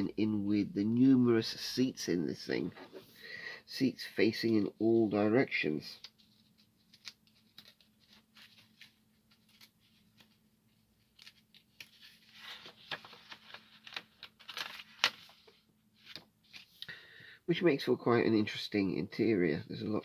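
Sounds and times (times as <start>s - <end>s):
paper booklet rustling: 4.2s - 16.8s.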